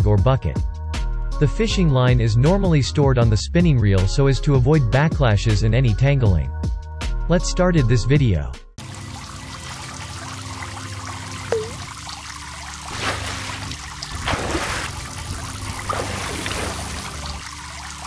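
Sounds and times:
water splashing: 0:08.8 - 0:18.0
water trickling and pouring: 0:08.8 - 0:18.0
droplet plop: 0:11.5 - 0:11.9.

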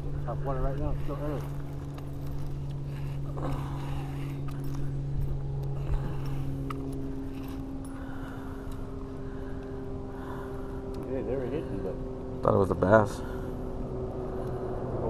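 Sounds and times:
distant engine hum: 0:00.0 - 0:15.0
low rumble: 0:00.0 - 0:15.0.

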